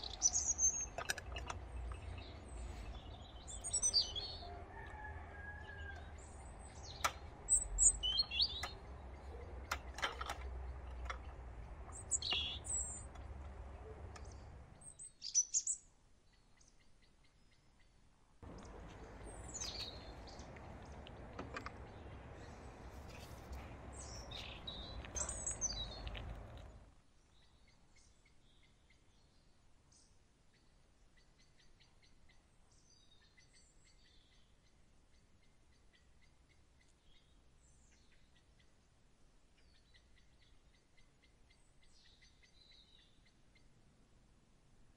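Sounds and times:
small birds chirping: 0:00.0 - 0:44.0
outdoor background noise: 0:00.0 - 0:44.9
sharp clicks: 0:06.7 - 0:14.7.

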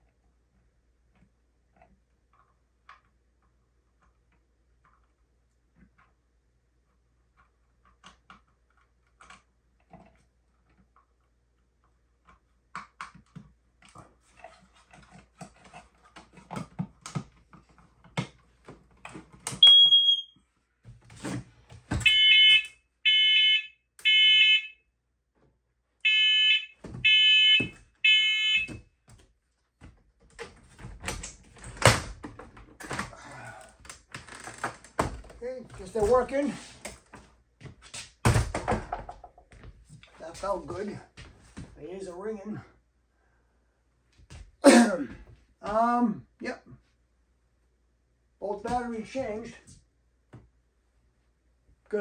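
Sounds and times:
loud smoke alarm beeps: 0:19.6 - 0:20.4, 0:22.0 - 0:24.8, 0:26.0 - 0:28.8
smoke alarm short chirp: 0:19.6 - 0:20.4
handling knocks and thump: 0:37.9 - 0:39.8.

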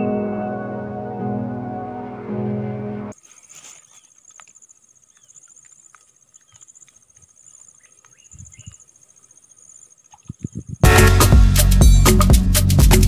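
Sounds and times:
background music: 0:00.0 - 0:03.2, 0:10.8 - 0:13.0
insects trilling: 0:03.1 - 0:10.8
faint clicks: 0:04.2 - 0:08.8.

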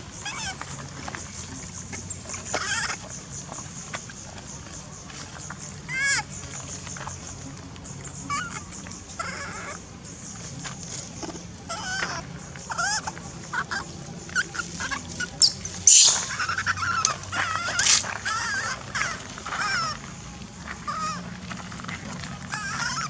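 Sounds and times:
monkeys calling: 0:00.0 - 0:23.0
monkey screaming: 0:00.2 - 0:00.6, 0:02.6 - 0:03.0, 0:05.9 - 0:06.2, 0:08.3 - 0:09.8, 0:11.7 - 0:20.0, 0:20.8 - 0:21.2, 0:22.5 - 0:23.0.

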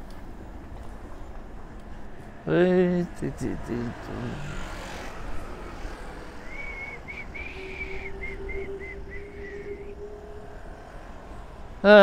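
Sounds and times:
whistled notes: 0:05.1 - 0:11.8
steady low rumble: 0:05.3 - 0:11.8.

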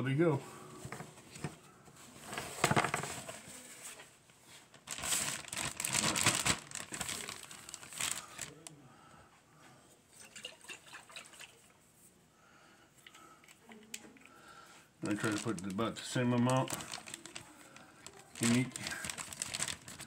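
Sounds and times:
plastic bag crinkling: 0:04.5 - 0:08.7, 0:15.0 - 0:20.0.

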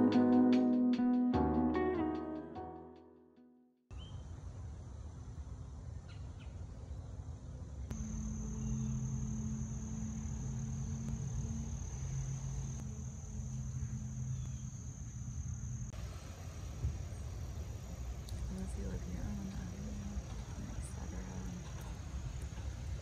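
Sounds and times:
low steady hum: 0:04.0 - 0:23.0
crickets trilling: 0:07.9 - 0:23.0.

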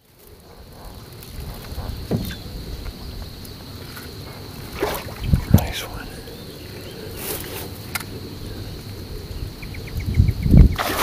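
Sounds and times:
insect buzzing: 0:00.0 - 0:11.0
dull low knock: 0:01.7 - 0:02.4.

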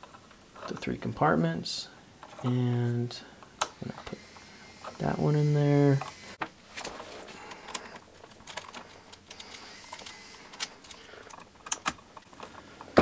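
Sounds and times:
rustling of wires: 0:05.9 - 0:13.0.

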